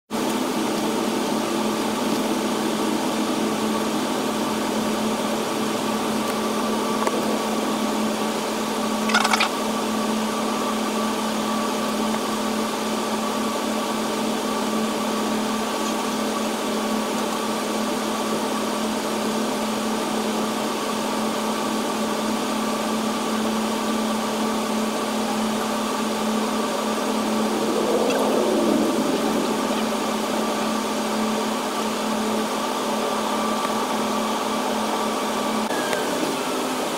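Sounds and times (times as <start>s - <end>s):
jet engines idling: 13.6s - 36.9s
sound dipping and rising in pitch: 26.4s - 32.0s.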